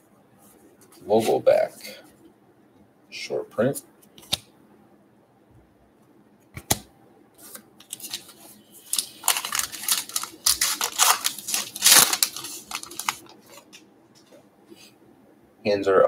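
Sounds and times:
wrapper tearing and crinkling: 0:07.8 - 0:13.8.

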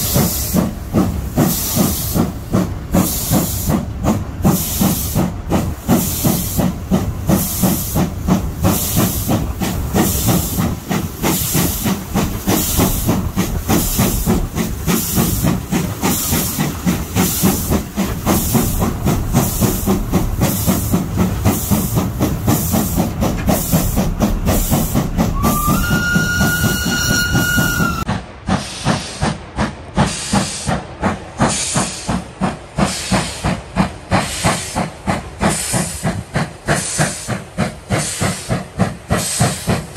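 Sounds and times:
steam locomotive exhaust chuffing: 0:00.0 - 0:39.9
steam whistle: 0:25.3 - 0:28.1.

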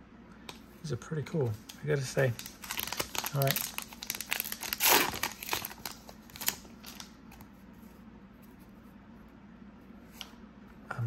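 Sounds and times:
wrapper crinkling and tearing: 0:01.7 - 0:07.4.

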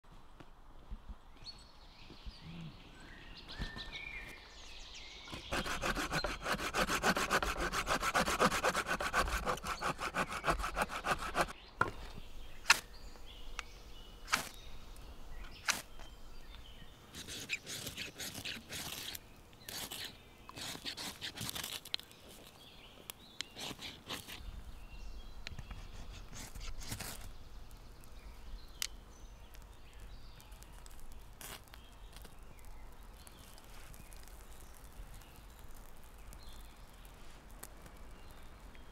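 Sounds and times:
knife scraping wood: 0:05.3 - 0:11.5, 0:17.1 - 0:21.9, 0:23.5 - 0:24.4, 0:25.6 - 0:27.3.

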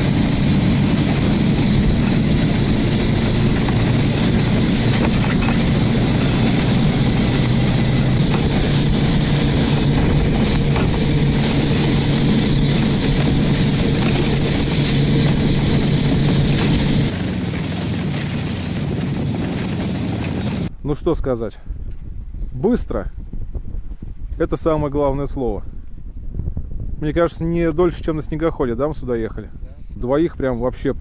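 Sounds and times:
wind and snow hiss: 0:00.0 - 0:20.7
engine droning steadily: 0:00.0 - 0:20.9.

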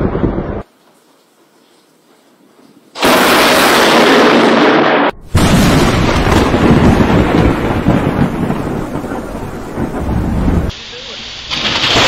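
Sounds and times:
thunder crashing and rumbling: 0:00.0 - 0:00.6, 0:03.0 - 0:10.7, 0:11.5 - 0:12.0.

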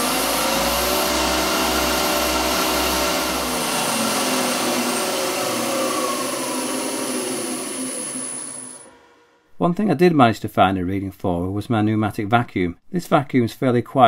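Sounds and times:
wood lathe motor whine: 0:00.0 - 0:09.3.

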